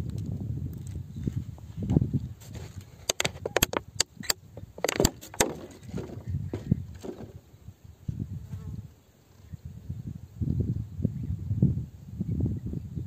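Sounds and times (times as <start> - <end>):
handling rustling: 2.4 - 7.4.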